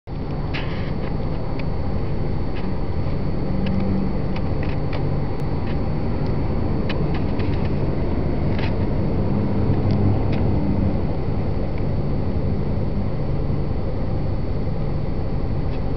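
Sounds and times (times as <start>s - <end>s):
vehicle engine rumble from cabin: 0.1s - 15.9s.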